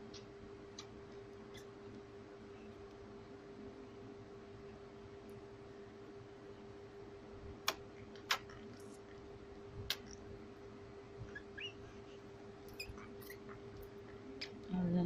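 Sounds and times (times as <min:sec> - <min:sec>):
steady low hum: 0:00.0 - 0:15.0
baby sucking clicks: 0:07.6 - 0:08.8, 0:09.9 - 0:10.2
tiny high squeaks: 0:11.3 - 0:11.9, 0:12.6 - 0:13.6.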